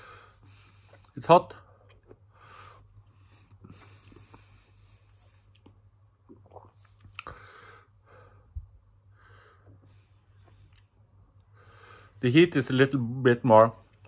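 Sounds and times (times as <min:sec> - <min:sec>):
man breathing heavily through mouth: 0:00.0 - 0:01.0.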